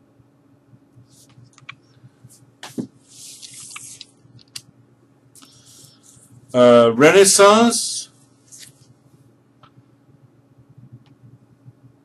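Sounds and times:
papery rustling: 2.6s - 4.2s, 8.5s - 8.9s.

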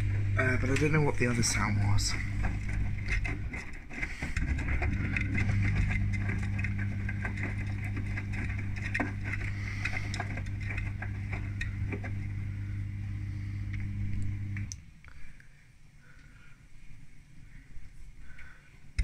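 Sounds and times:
washing machine pump humming: 0.0s - 14.8s
water sloshing in drum: 2.2s - 12.6s.

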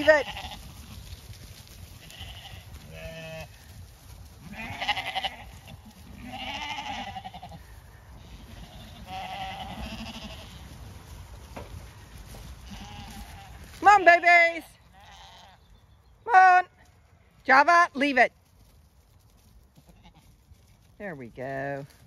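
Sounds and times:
sheep bleating: 0.0s - 1.1s, 2.0s - 3.6s, 4.4s - 10.7s, 12.6s - 15.6s, 19.8s - 20.3s.

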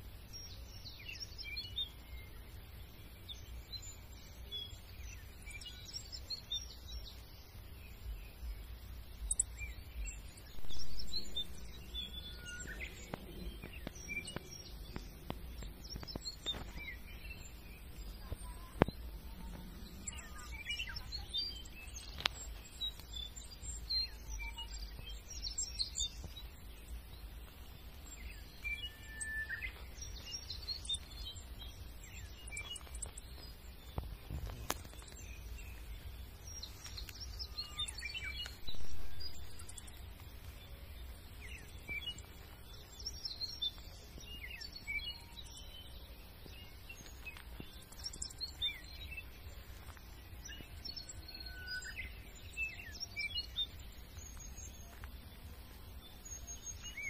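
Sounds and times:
small birds chirping: 0.0s - 57.0s
low outdoor rumble: 6.7s - 44.8s.

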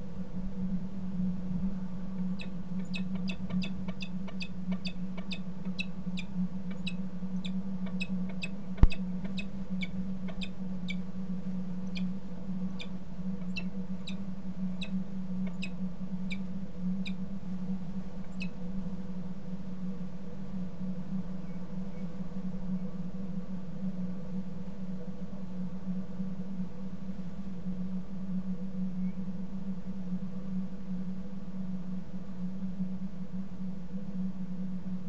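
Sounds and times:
low electrical hum: 0.0s - 35.0s
falcon calling in clipped notes: 2.3s - 11.0s, 12.8s - 14.2s.

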